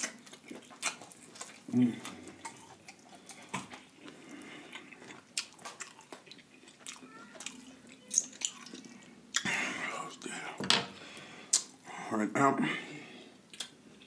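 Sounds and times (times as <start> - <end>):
wet chewing: 0.0 - 9.5.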